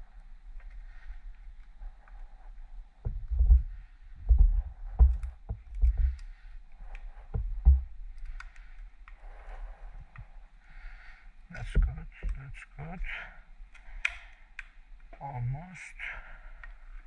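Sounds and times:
dull low thumps and knocks: 3.0 - 6.2, 7.3 - 8.0, 11.6 - 12.5.

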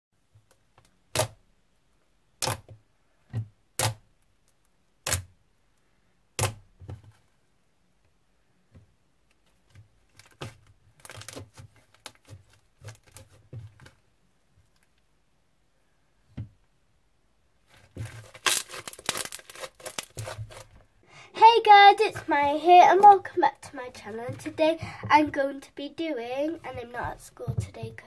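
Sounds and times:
slime crackles and clicks: 18.2 - 20.6.

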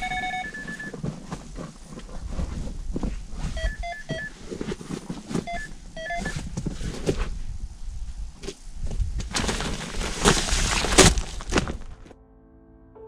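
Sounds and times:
electronic bite alarm beeps: 0.0 - 0.9, 3.6 - 4.3, 5.5 - 6.4
rustling: 0.0 - 12.1.

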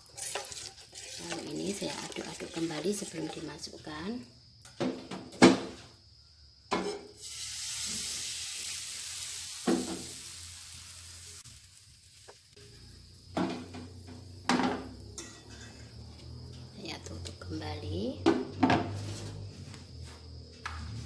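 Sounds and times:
batter sizzling in hot oil: 0.0 - 3.8, 7.1 - 16.4.

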